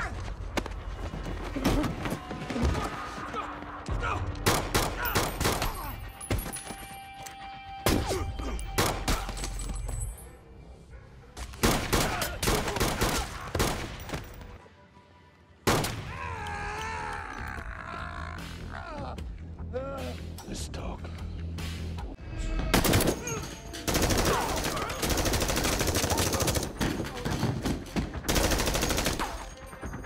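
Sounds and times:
film music score: 0.0 - 30.0
rapid gunshots: 11.6 - 14.0, 23.9 - 29.5.

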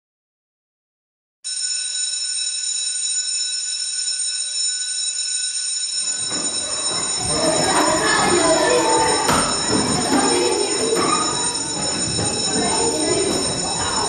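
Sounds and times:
electric school bell ringing: 1.5 - 14.0
children chattering: 6.0 - 14.0.

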